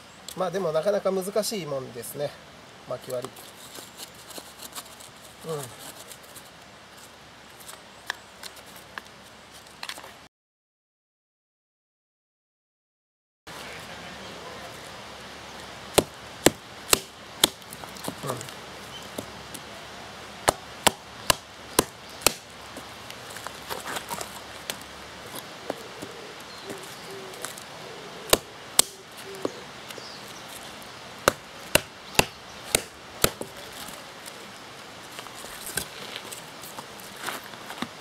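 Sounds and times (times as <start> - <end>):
hatchet chopping wood: 15.9 - 18.3, 20.4 - 22.5, 28.3 - 29.6, 31.2 - 33.6.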